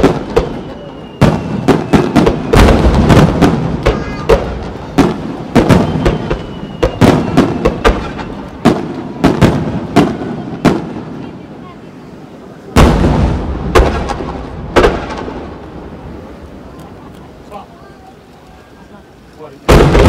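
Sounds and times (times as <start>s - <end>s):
firework bangs: 0.0s - 17.6s, 19.4s - 20.0s.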